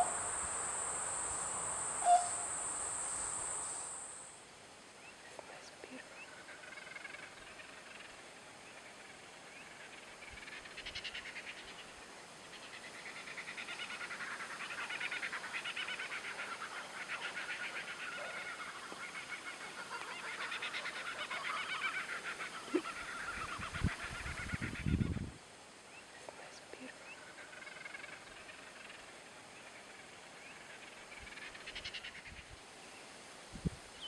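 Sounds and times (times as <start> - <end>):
birds chattering: 0.0 - 4.1.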